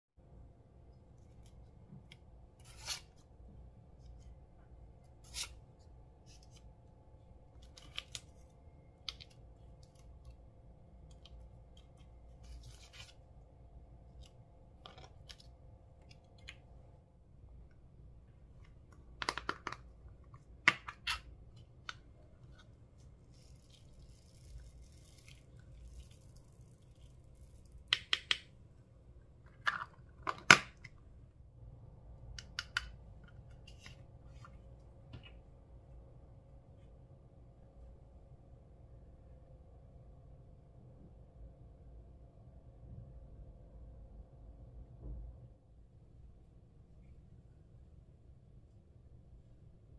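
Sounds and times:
low steady hum: 0.2s - 49.9s.

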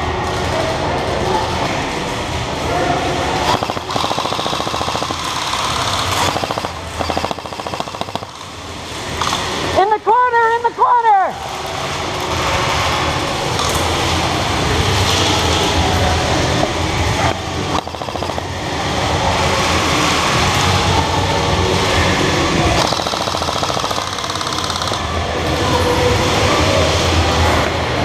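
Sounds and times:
airsoft rifles firing full-auto: 3.4s - 8.6s, 17.2s - 19.0s, 22.8s - 25.2s.

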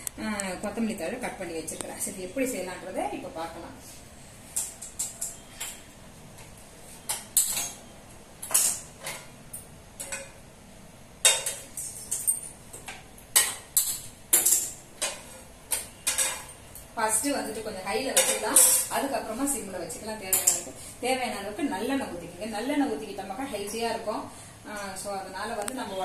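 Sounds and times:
metal utensils clinking on grates: 11.2s - 19.0s, 20.3s - 20.7s.

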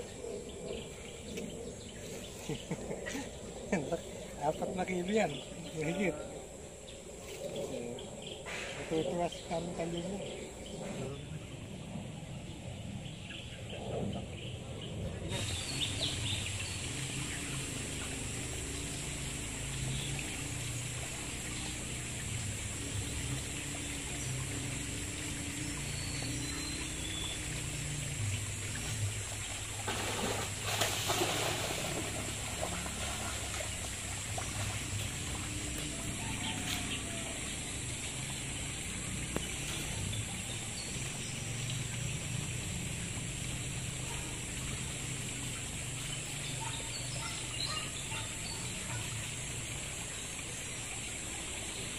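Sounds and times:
net splashing through pond water: 15.3s - 51.0s.

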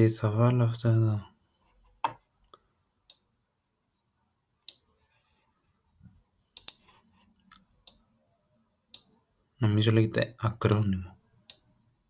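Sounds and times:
computer mouse clicks: 4.6s - 4.9s, 6.6s - 8.0s, 8.9s - 9.1s, 10.6s - 11.7s.

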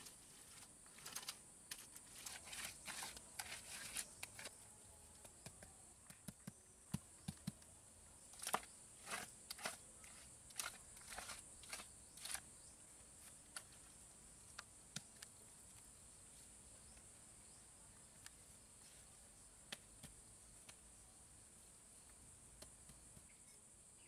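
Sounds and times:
scraping over wet cement: 0.0s - 4.6s.

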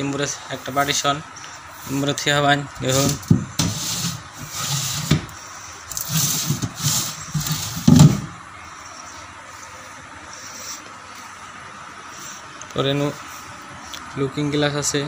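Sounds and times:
glass panels sliding on track: 2.8s - 8.3s.

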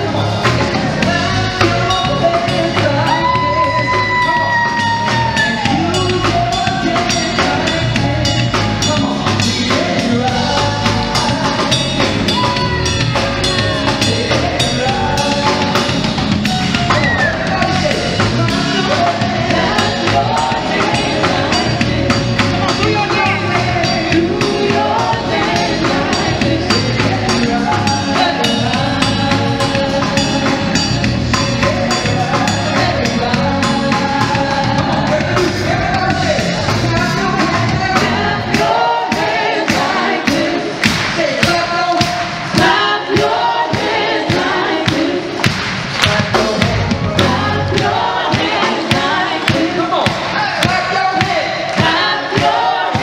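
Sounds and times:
band playing: 0.0s - 53.0s
gospel choir singing: 0.0s - 53.0s
audience clapping along: 40.8s - 42.6s, 44.9s - 46.6s.

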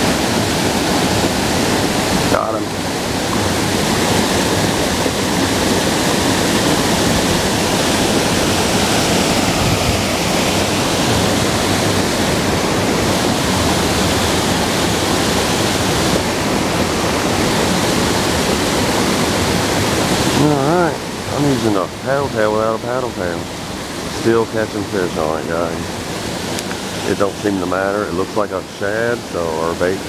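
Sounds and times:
waterfall pouring into a pool: 0.0s - 30.0s.

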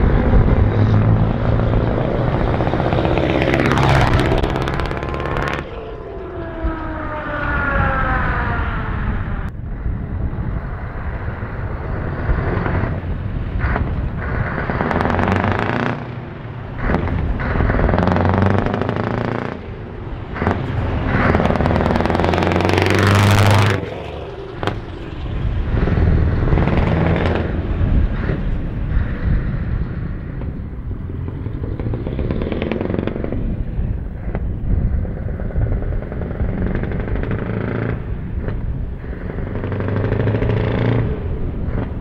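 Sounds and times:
truck engines pulling hard: 0.0s - 42.0s
sharp cracks: 13.6s - 24.9s.

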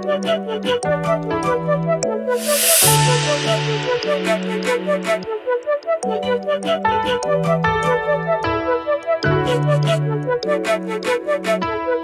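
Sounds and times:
background music: 0.0s - 12.0s
hissing wash: 2.4s - 5.3s.

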